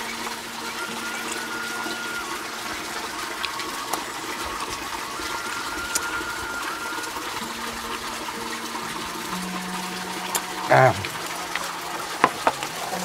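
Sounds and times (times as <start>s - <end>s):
running water: 0.0s - 13.0s.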